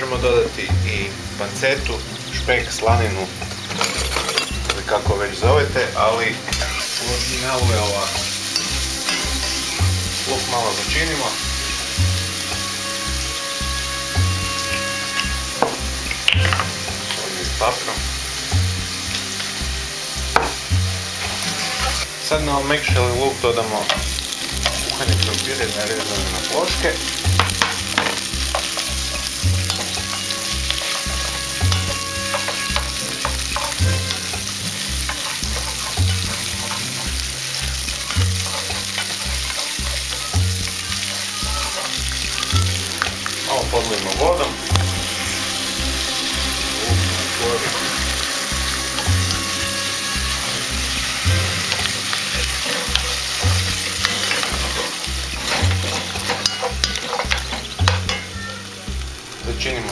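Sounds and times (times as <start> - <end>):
potatoes sizzling in oil: 0.0 - 59.9
low repeating bass line: 0.2 - 3.6, 8.8 - 14.7, 15.3 - 21.2, 21.8 - 56.1
wooden spoon scraping a pot: 21.1 - 22.3, 23.7 - 58.2.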